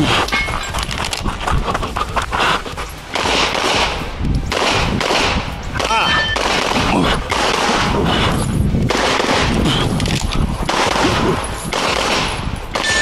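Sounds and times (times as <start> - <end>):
pistol firing rapid shots: 3.1 - 10.0, 10.6 - 13.0.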